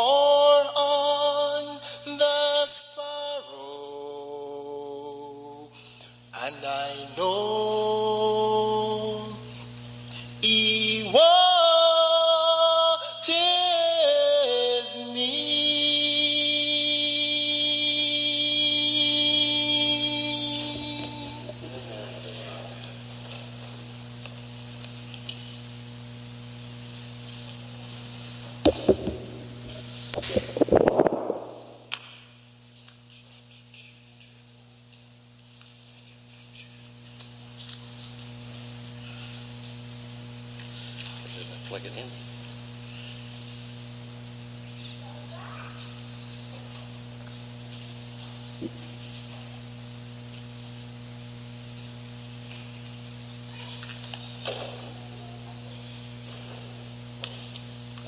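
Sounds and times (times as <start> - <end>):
low electrical hum with hiss: 0.0 - 58.0
sharp knocks near microphone: 28.7 - 29.3
low bump: 28.7 - 31.9.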